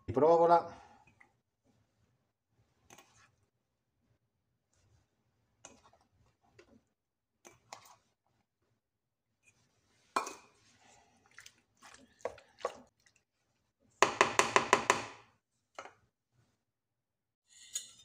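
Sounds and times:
wooden spatula knocking metal pan: 0:14.0 - 0:15.2.

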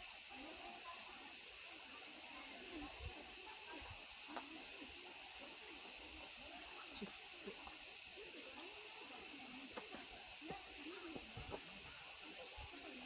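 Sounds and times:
high-pitched insect chorus: 0:00.0 - 0:13.0.

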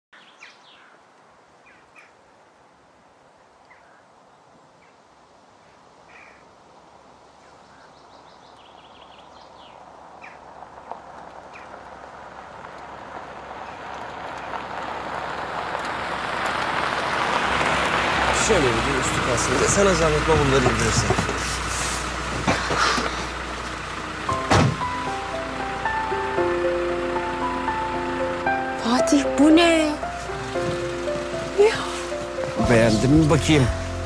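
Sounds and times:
birds chirping: 0:00.2 - 0:02.2, 0:03.6 - 0:11.8, 0:17.4 - 0:34.0
car approaching on driveway: 0:07.9 - 0:34.0.

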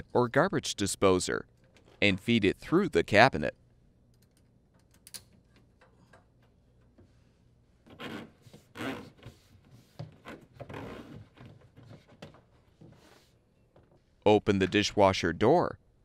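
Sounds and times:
plastic hose scraping on wood: 0:07.9 - 0:13.4.

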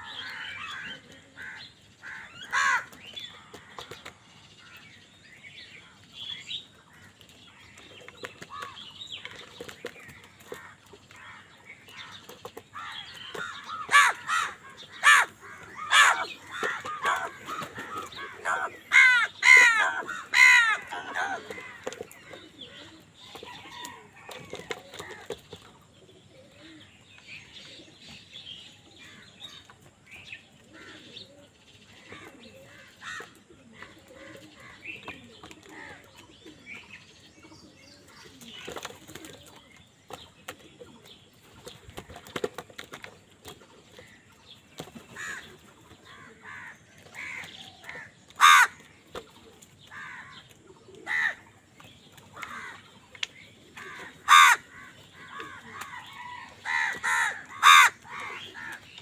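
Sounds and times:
crows calling and chattering: 0:00.0 - 0:05.0, 0:05.7 - 0:25.5, 0:30.7 - 0:31.4, 0:32.0 - 0:36.5, 0:44.9 - 0:51.6, 0:52.3 - 0:59.0
harsh crow caws: 0:00.1 - 0:03.0, 0:12.8 - 0:21.8, 0:46.4 - 0:48.8, 0:53.8 - 0:56.0, 0:56.6 - 0:58.8.

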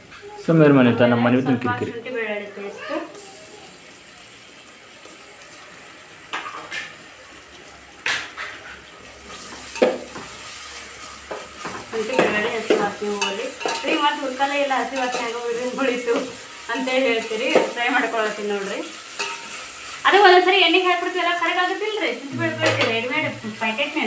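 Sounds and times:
masala sizzling in oil: 0:00.0 - 0:24.0
spoon scraping a pan: 0:08.2 - 0:20.0.

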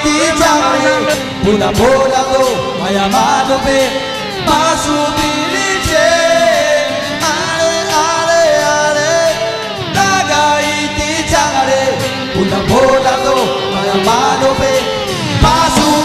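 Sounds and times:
person singing lead vocals: 0:00.0 - 0:16.0
rock band playing: 0:00.0 - 0:16.0.

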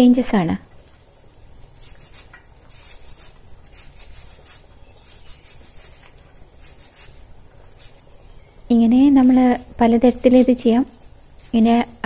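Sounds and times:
knife slicing cabbage: 0:01.7 - 0:08.0, 0:09.1 - 0:12.0.

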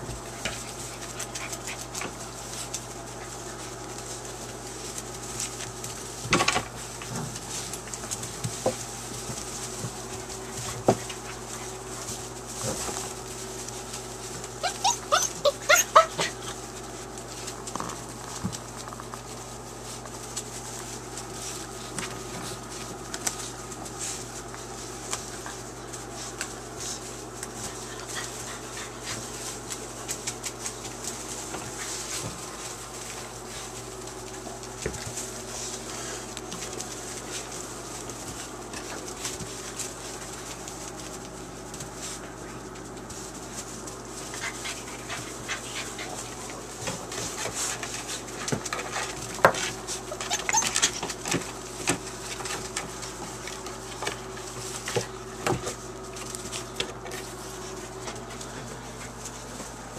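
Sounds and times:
rustling of wood shavings: 0:00.0 - 0:59.9
puppies whimpering and yipping: 0:14.5 - 0:16.8, 0:49.9 - 0:51.3.

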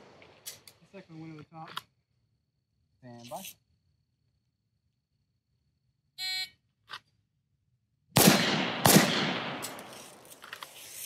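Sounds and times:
gunshots with long echo: 0:08.2 - 0:09.9.

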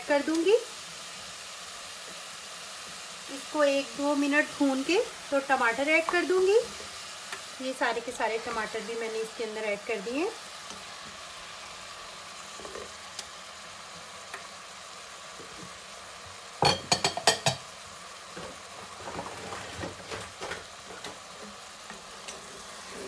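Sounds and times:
meat sizzling in a metal pan: 0:00.0 - 0:23.0
spoon scraping and knocking pan: 0:16.6 - 0:17.7.

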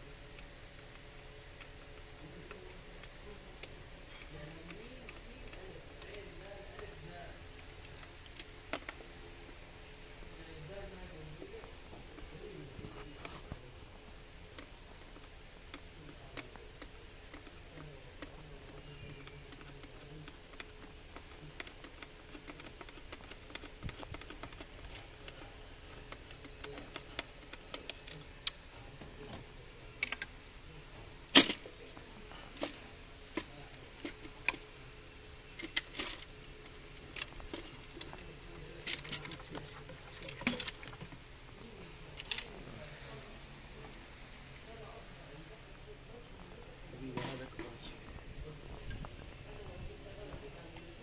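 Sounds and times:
tools and parts clinking: 0:07.6 - 0:09.0, 0:14.5 - 0:30.4, 0:31.3 - 0:34.8, 0:35.5 - 0:41.2, 0:42.2 - 0:42.6.

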